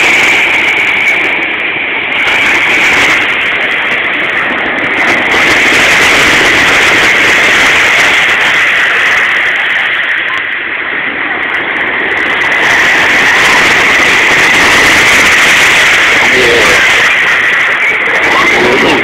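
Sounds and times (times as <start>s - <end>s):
surf breaking on a beach: 0.0s - 19.0s.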